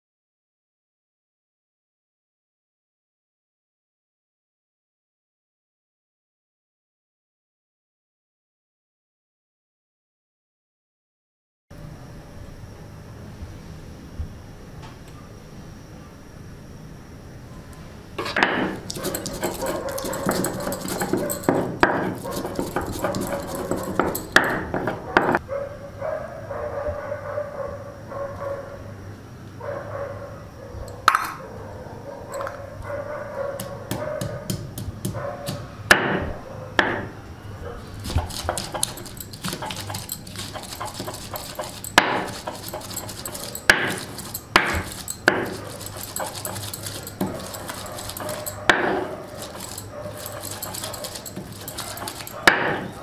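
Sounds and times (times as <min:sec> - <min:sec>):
stone scraping on stone slab: 0:18.2 - 0:25.3, 0:38.0 - 0:53.0.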